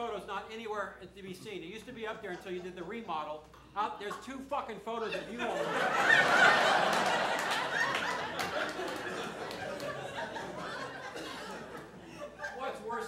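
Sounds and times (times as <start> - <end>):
audience laughing: 4.0 - 13.0.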